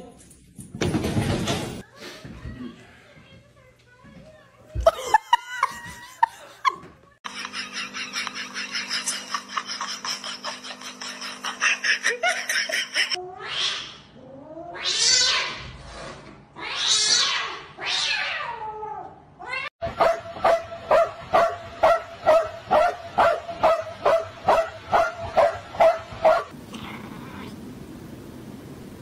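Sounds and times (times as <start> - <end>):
dog barking: 19.9 - 26.5.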